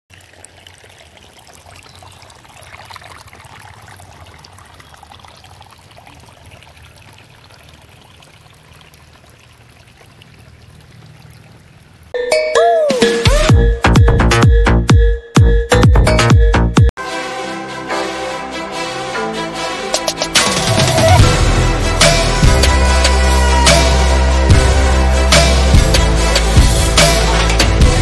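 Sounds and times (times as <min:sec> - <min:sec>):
stream flowing over rocks: 0:00.1 - 0:12.2
electronic synth music: 0:12.2 - 0:28.0.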